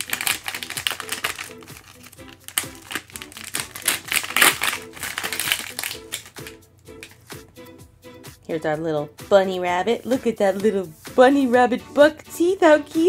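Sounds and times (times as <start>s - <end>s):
plastic wrapper crinkling and tearing: 0.0s - 7.2s
light background music: 0.0s - 13.0s.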